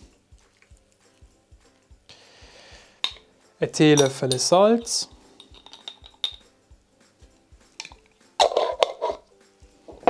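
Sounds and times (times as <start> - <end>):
teaspoon clinking glass jar: 3.0 - 6.5.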